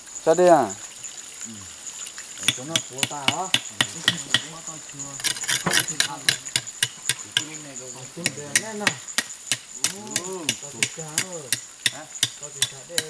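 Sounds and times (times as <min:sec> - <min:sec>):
insect drone: 0:00.0 - 0:13.0
low voices: 0:01.4 - 0:01.8, 0:02.4 - 0:09.0, 0:09.8 - 0:13.0
knife chopping against stone: 0:02.4 - 0:04.5, 0:05.2 - 0:07.5, 0:08.3 - 0:13.0.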